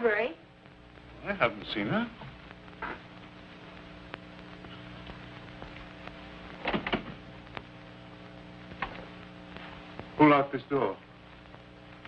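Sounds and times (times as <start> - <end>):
film soundtrack hum and hiss: 0.0 - 12.0
faint clicks: 7.4 - 7.8.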